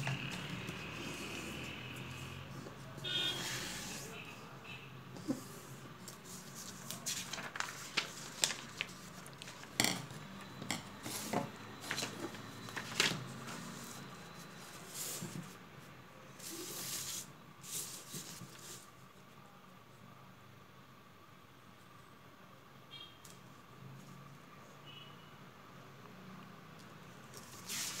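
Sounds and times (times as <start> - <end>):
paper rustling on table: 5.2 - 10.1, 11.0 - 15.6, 16.4 - 18.9, 27.3 - 28.0
paper crackling: 6.0 - 9.8, 11.8 - 14.0.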